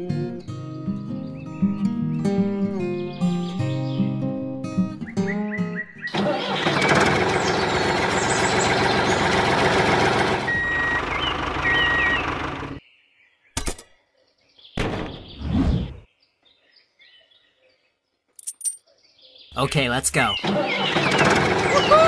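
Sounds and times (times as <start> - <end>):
vehicle engine running: 6.1 - 12.8, 20.3 - 22.0.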